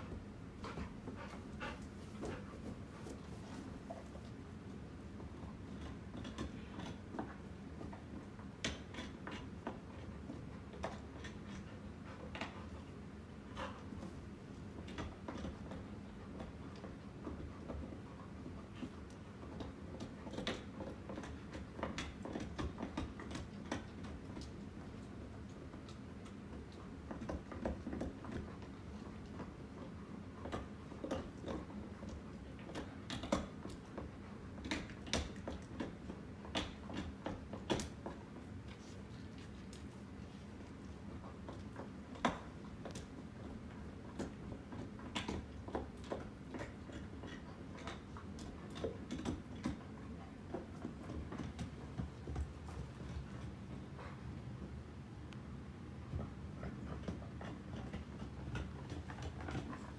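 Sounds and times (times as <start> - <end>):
ceiling fan whirring: 0.0 - 59.9.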